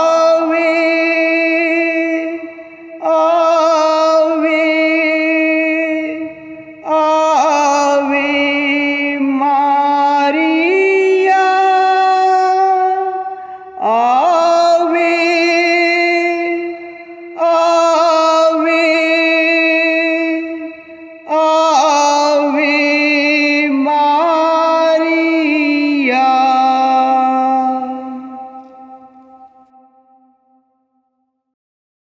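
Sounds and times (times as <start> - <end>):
person singing devotional chant: 0.0 - 30.8
singer breathing: 13.3 - 13.8.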